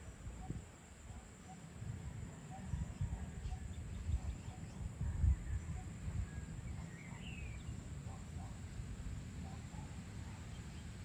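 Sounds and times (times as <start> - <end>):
faint bird chirps: 2.4 - 8.6.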